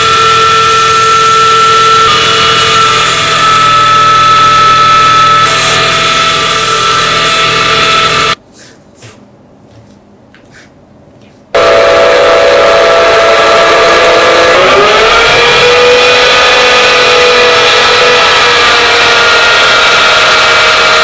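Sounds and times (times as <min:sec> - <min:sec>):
wood lathe whining: 0:00.0 - 0:08.4, 0:11.6 - 0:21.0
rising whistling tone: 0:00.3 - 0:08.4.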